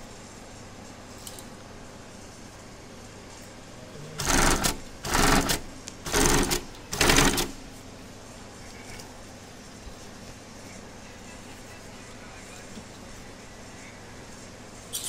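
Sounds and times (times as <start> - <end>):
industrial sewing machine stitching: 4.2 - 7.6.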